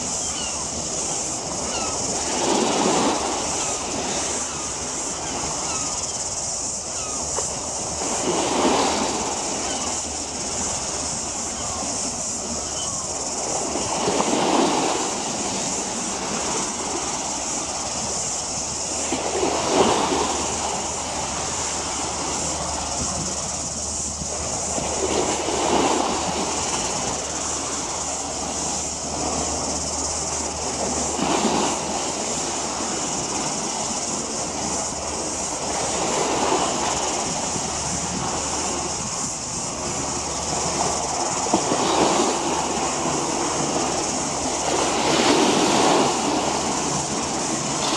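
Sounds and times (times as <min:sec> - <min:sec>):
water washing against waterfront: 0:00.0 - 0:47.9.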